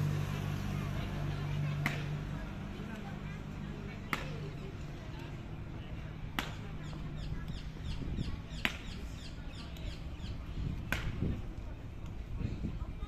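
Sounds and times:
birds chirping: 6.5 - 11.0.

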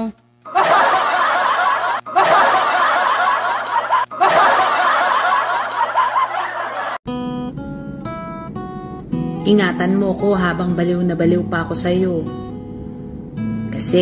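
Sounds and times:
laughter: 0.5 - 7.0
plucked guitar music: 7.1 - 14.0.

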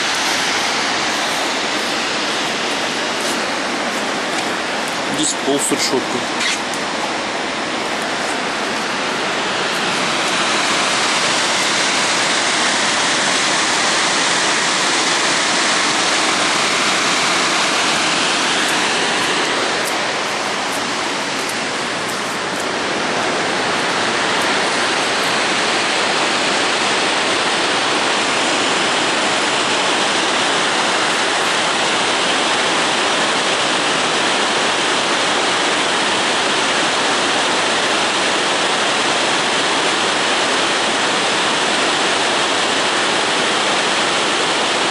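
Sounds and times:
waterfall rushing: 0.0 - 44.9.

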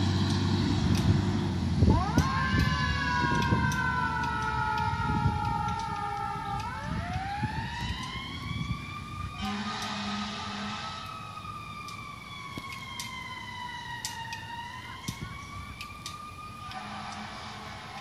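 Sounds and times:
fire engine siren wailing: 0.0 - 18.0
low horn blast: 9.4 - 11.2, 16.6 - 18.0.

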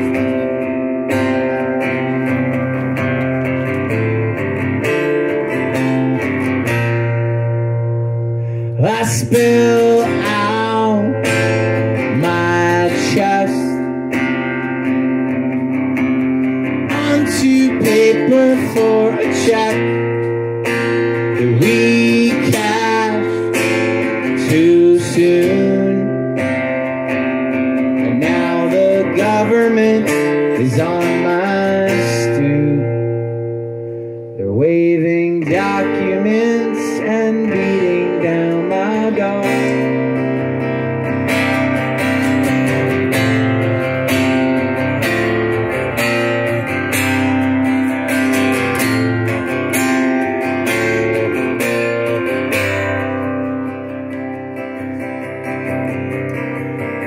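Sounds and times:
acoustic guitar strumming: 0.0 - 57.0
man singing: 8.6 - 14.3, 16.7 - 26.7, 27.8 - 33.4, 34.4 - 40.6.

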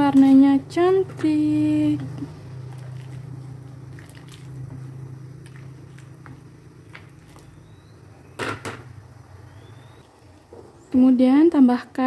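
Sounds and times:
liquid sloshing: 2.6 - 7.5.

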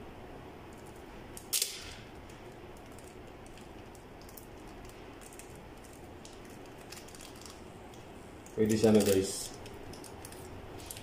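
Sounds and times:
adhesive tape ripping off a roll: 1.3 - 2.1, 2.8 - 7.6
faint rustles and clicks of tape: 2.1 - 11.0.

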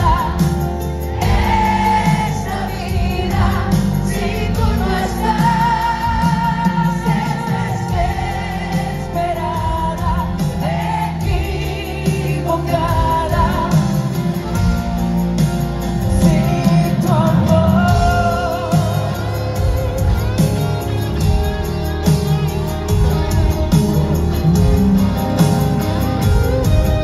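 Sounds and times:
live band music: 0.0 - 27.0
person singing: 16.0 - 20.6.

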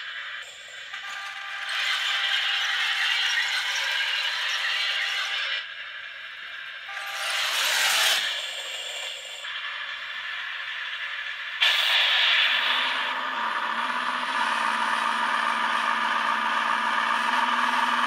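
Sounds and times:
small electric motors whirring: 6.9 - 9.5.

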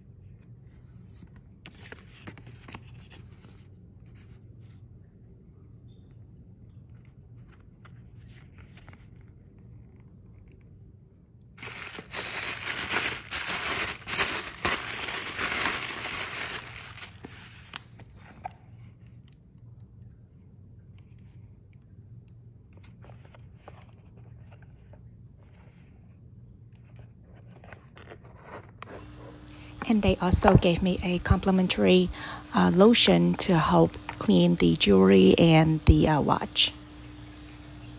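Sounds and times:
quiet rustling and handling: 0.0 - 5.0, 6.6 - 19.9, 20.8 - 37.9
wrapping crinkling loudly: 11.6 - 17.9.

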